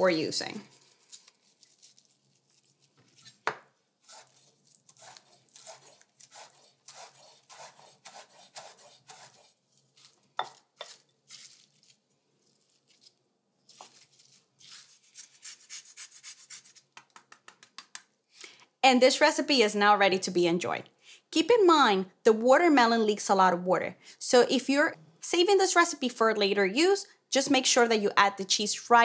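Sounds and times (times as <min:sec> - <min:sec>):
spoon tossing salad in glass bowl: 0:04.0 - 0:15.5
lemon zested on grater: 0:04.0 - 0:16.9
knife chopping on wooden board: 0:05.0 - 0:09.4.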